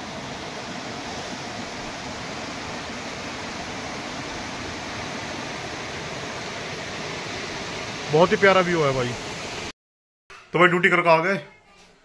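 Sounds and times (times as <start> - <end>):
river rushing over rocks: 0.0 - 9.7.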